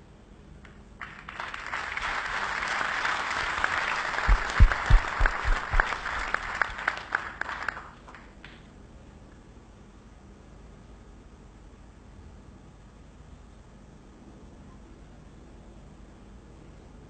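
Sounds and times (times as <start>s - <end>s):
close claps: 0.6s - 8.7s
audience applauding: 1.0s - 8.6s.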